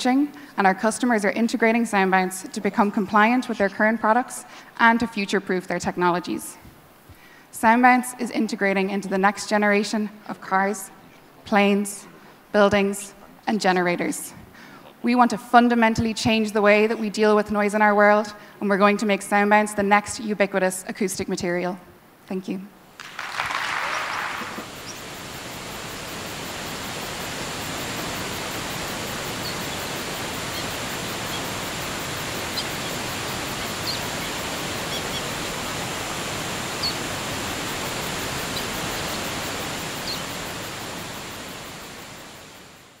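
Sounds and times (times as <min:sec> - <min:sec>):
waterfall rushing: 0:23.0 - 0:42.9
faint bird chirps: 0:28.9 - 0:35.5, 0:36.7 - 0:37.1, 0:38.4 - 0:40.4.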